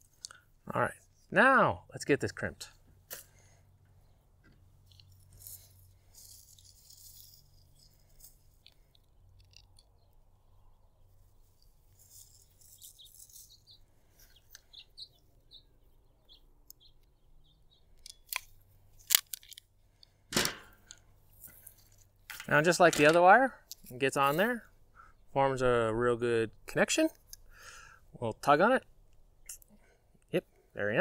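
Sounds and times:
faint rustling and ticks: 11.0 - 14.9.

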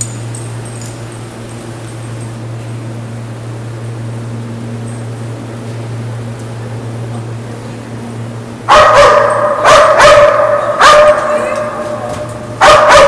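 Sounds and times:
low steady hum: 0.0 - 13.0
dog barking loudly: 8.7 - 13.0.

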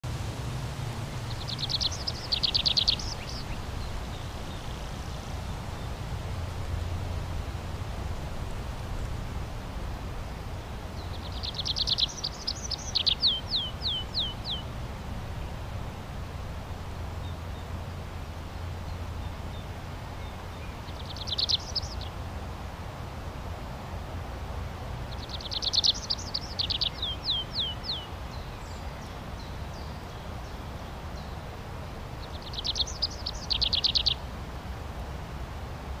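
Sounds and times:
bird singing fast trills: 1.3 - 4.6, 11.0 - 14.7, 20.5 - 22.1, 25.1 - 28.8, 32.2 - 34.2.

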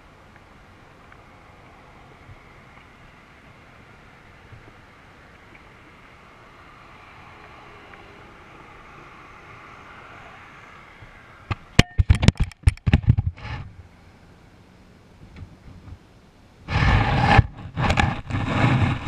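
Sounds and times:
faint rushing noise: 0.0 - 19.0
payload clattering on asphalt: 11.5 - 13.8.

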